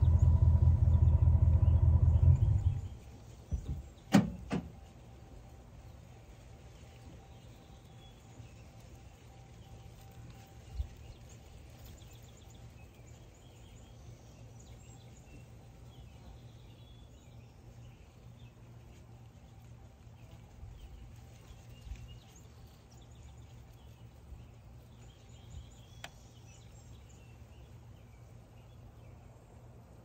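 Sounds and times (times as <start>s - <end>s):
small bird chirps: 0.0s - 4.1s, 20.2s - 29.2s
low steady rumble: 0.0s - 30.0s.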